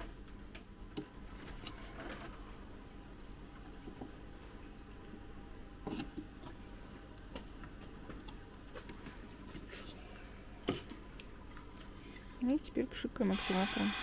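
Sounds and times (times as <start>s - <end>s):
low steady room hum: 0.0s - 14.0s.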